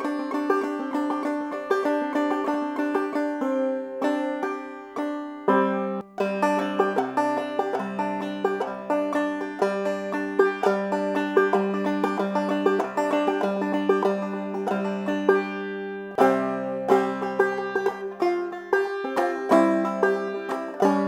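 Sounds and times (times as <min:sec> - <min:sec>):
banjo plucking: 0:00.0 - 0:21.0.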